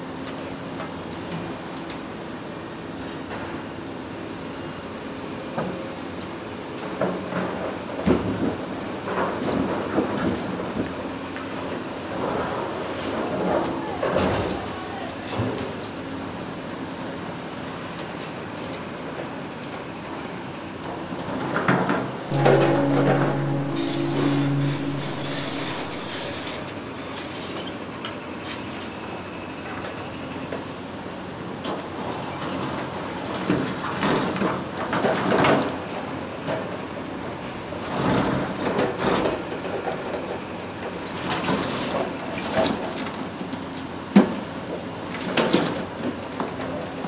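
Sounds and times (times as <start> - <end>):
excavator engine running: 20.8 - 27.4
metal scraping and clanking: 22.2 - 26.8.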